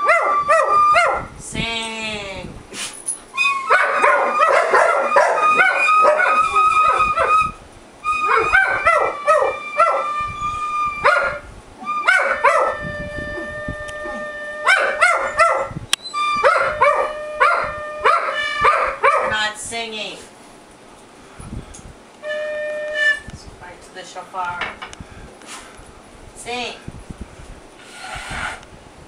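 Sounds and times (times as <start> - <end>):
dog howling and yipping: 0.0 - 1.3, 3.3 - 19.4
recorder playing held notes: 0.0 - 1.3, 3.3 - 19.0, 22.2 - 23.4.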